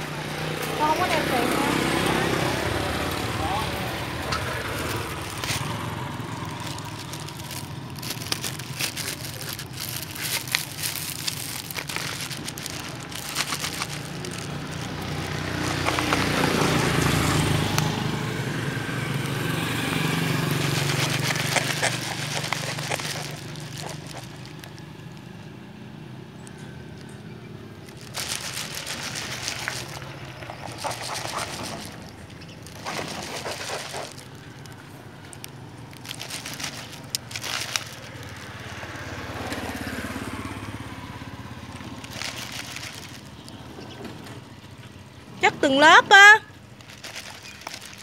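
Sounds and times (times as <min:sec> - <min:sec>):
passing vehicle engine: 0:00.0 - 0:48.0
concrete posts clunking and scraping: 0:01.9 - 0:17.1, 0:27.8 - 0:39.8.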